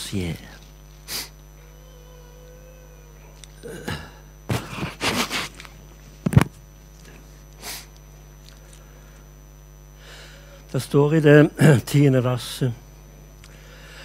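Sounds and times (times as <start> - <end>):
man sniffing: 1.1 - 1.4, 3.6 - 5.7, 7.5 - 8.0.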